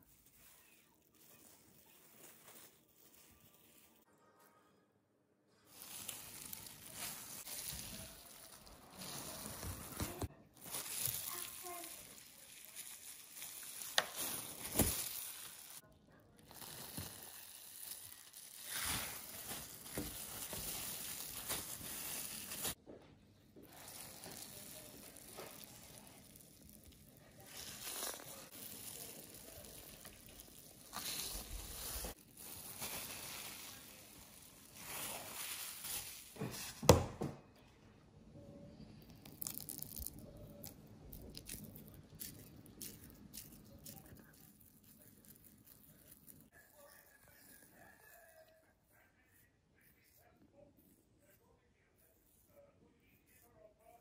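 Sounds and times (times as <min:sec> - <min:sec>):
plastic glove crinkling: 0:00.0 - 0:04.1, 0:05.6 - 0:15.8, 0:16.4 - 0:22.8, 0:23.6 - 0:36.9, 0:39.0 - 0:48.1
cheese curds smeared on worktop: 0:16.5 - 0:22.8, 0:23.7 - 0:36.8.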